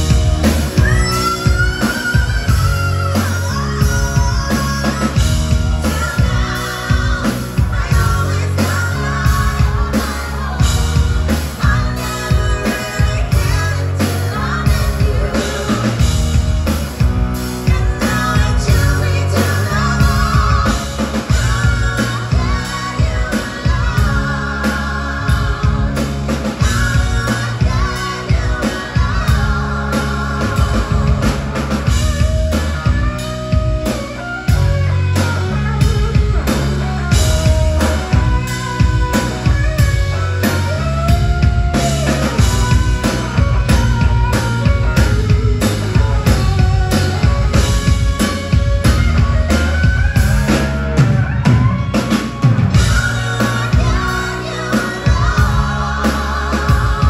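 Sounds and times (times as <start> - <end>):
drum kit: 0.0 - 57.0
electric bass: 0.0 - 57.0
electric guitar: 0.0 - 57.0
women singing: 0.1 - 16.4, 17.5 - 33.0, 52.7 - 57.0.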